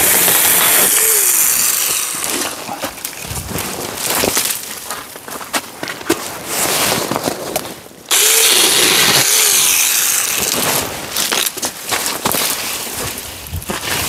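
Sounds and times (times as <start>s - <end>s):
mini chainsaw cutting branch: 0.0s - 3.1s, 8.1s - 11.5s.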